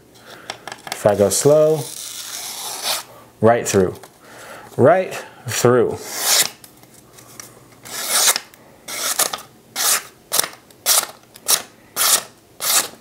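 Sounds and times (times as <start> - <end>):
knife blade slicing paper: 6.0 - 6.6, 7.8 - 13.0.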